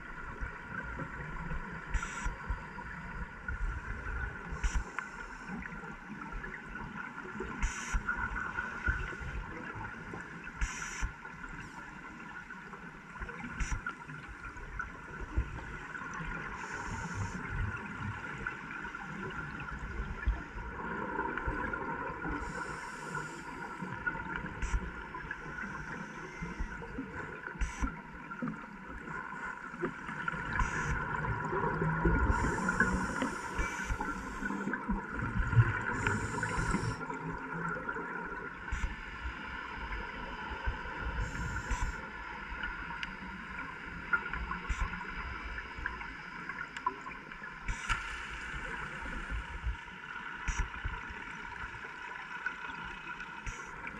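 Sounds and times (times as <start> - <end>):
diver regulator bubbles gurgling: 0.0 - 53.9
underwater hum and low rumble: 0.0 - 53.9.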